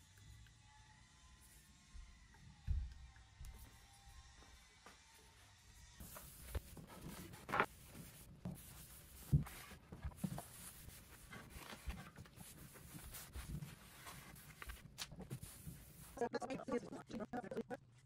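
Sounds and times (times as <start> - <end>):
cloth rubbing on wood: 6.0 - 16.2.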